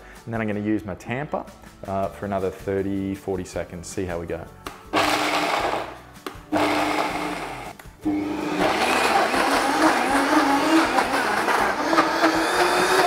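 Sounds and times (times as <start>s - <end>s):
blender motor grinding: 5.0s - 13.0s.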